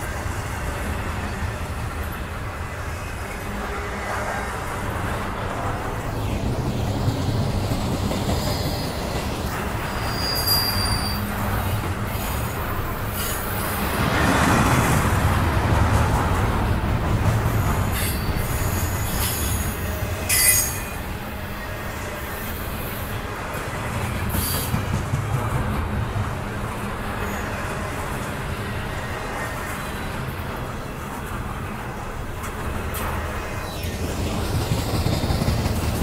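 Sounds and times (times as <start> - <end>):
freight train wheels rumbling: 0.0 - 36.0
wheel squeals: 9.8 - 11.5.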